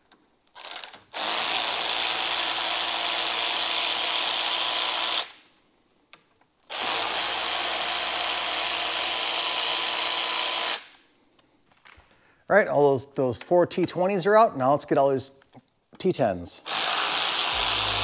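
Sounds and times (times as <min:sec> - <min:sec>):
power drill running: 0:00.6 - 0:05.4, 0:06.7 - 0:10.9, 0:16.6 - 0:18.0.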